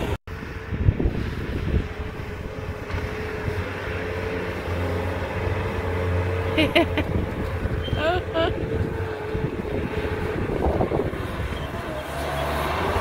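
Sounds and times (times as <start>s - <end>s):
loader engine whining: 0.0s - 13.0s
person speaking: 8.0s - 8.6s.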